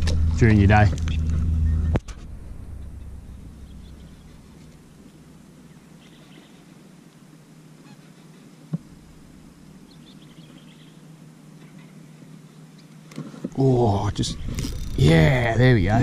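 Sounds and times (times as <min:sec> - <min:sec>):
fishing reel cranking: 0:14.5 - 0:15.1.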